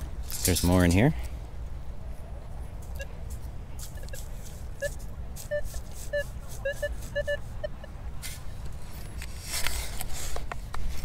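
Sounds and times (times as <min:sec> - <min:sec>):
metal detector beeps: 0:03.8 - 0:08.0.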